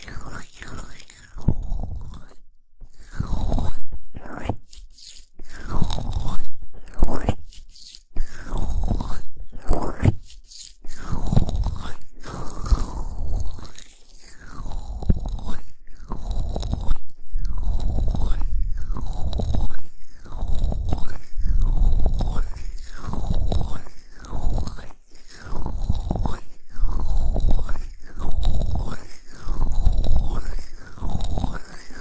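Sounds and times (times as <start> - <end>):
hands rubbing on microphone: 3.2 - 17.0.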